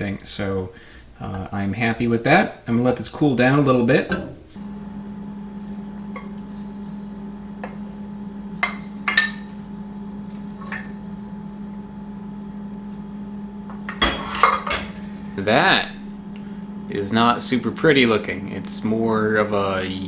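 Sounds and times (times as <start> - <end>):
low hum: 4.4 - 20.0.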